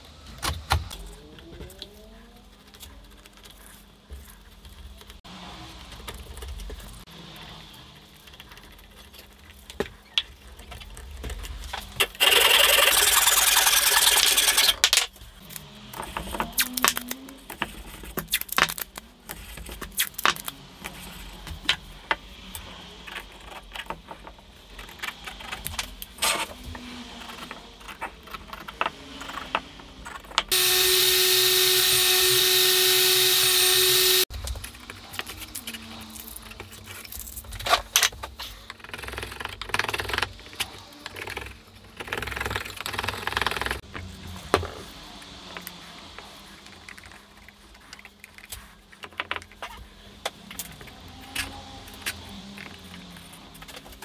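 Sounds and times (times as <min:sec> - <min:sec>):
woodworking power tool running: 0:30.5 - 0:34.3.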